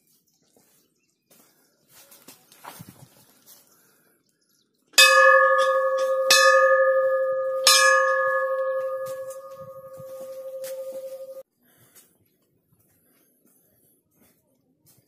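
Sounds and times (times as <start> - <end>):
temple bell clanging: 5.0 - 11.4.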